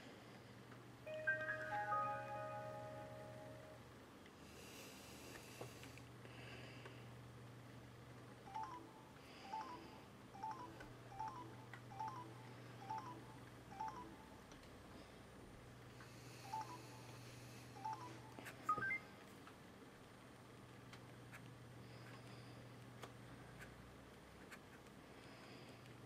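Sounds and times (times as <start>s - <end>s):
two-note key beeps: 1.1s - 3.8s
rising three-note tone: 1.1s - 3.9s.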